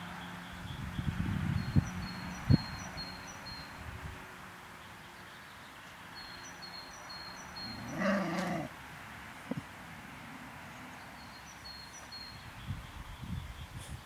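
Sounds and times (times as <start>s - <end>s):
faint bird chirps: 5.3s - 8.3s
dog growling: 7.8s - 8.7s.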